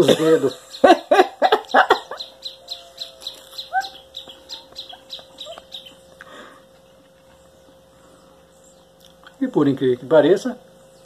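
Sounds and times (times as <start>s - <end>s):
bird chirps: 0.5s - 9.2s.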